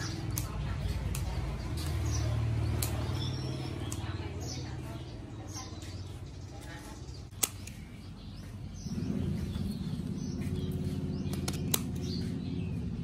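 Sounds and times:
scissors snipping mushroom stems: 0.0 - 4.3, 7.3 - 8.0, 11.2 - 12.2.

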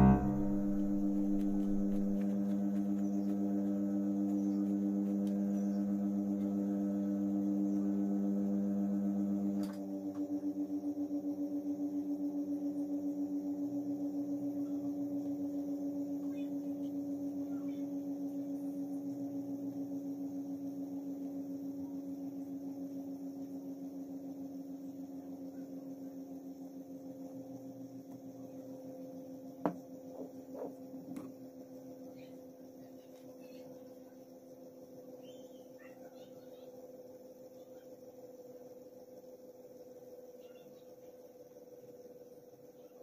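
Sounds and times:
low ringing gong tone: 0.0 - 9.6.

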